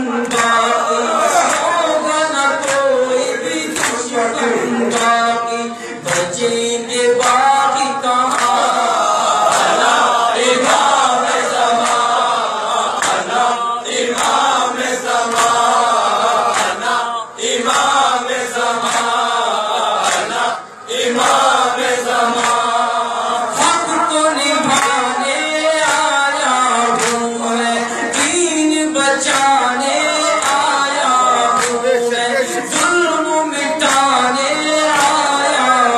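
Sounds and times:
man chanting into a microphone: 0.0 - 11.8, 21.6 - 35.9
men chanting in chorus: 0.0 - 35.9.

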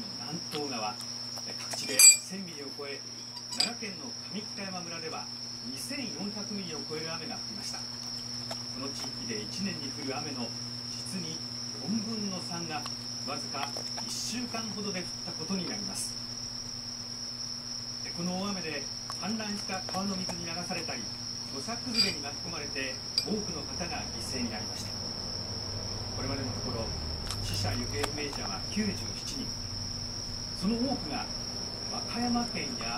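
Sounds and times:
muffled television voices: 18.0 - 25.0.

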